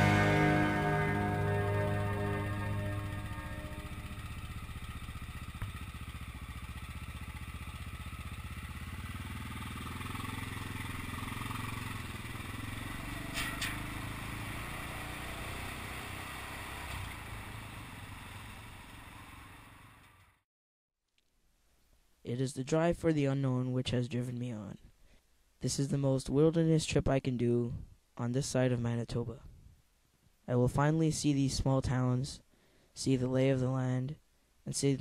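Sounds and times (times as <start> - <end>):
motorcycle engine running: 0.0 - 20.4
motorcycle on steel grate bridge: 0.0 - 20.4.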